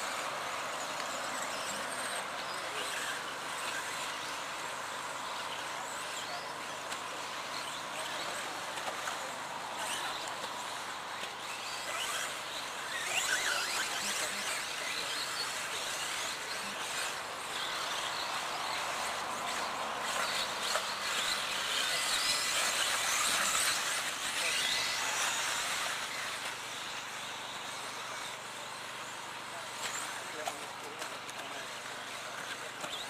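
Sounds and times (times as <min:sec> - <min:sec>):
rc car motors whining: 0:00.0 - 0:33.0.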